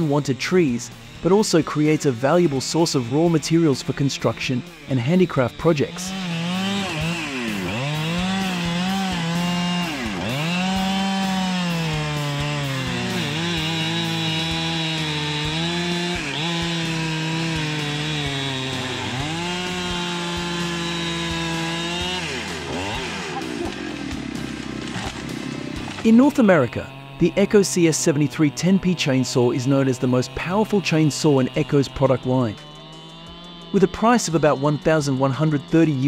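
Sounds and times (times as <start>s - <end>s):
chainsaw cutting wood: 0.0s - 36.0s.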